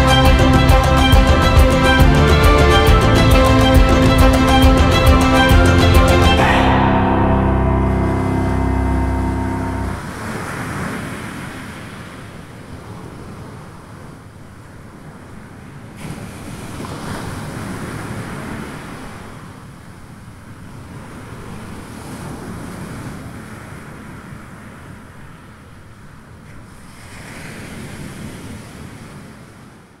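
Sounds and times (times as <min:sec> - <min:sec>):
sea surf washing ashore: 0:00.0 - 0:19.8, 0:26.5 - 0:29.8
wind: 0:00.0 - 0:30.0.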